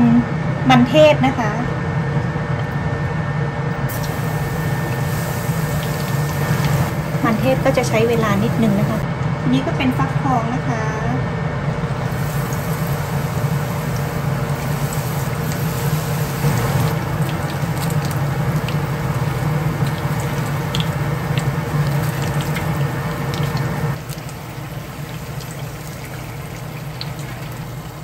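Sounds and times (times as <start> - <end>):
low hum: 0.0 - 28.0
oil sizzling: 3.9 - 9.0, 11.8 - 28.0.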